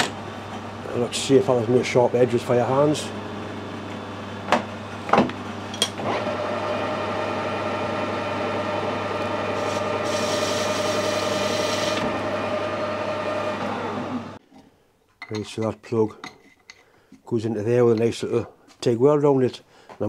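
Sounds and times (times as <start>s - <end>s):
metal lathe motor whine: 5.7s - 14.4s
high hissing metal cut: 9.5s - 12.0s.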